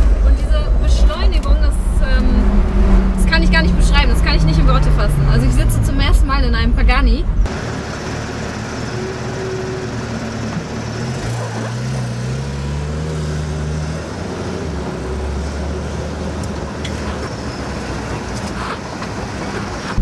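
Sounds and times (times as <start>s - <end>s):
engine note climbing in pitch: 0.0s - 15.9s
car engines in slow traffic: 0.0s - 20.0s.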